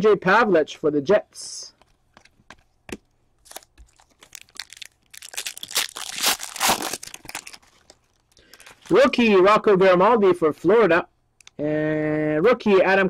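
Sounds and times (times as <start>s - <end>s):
foil wrapper crinkling: 3.4s - 9.2s.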